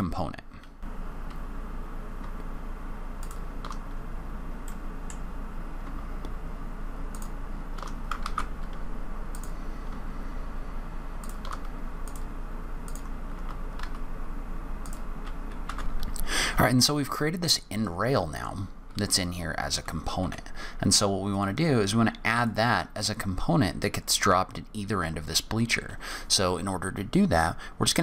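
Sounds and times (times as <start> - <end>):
low hum and hiss: 0.0 - 28.0
computer keyboard keystrokes: 3.2 - 3.8, 7.1 - 8.8, 11.2 - 12.3, 12.9 - 14.0, 14.8 - 16.1.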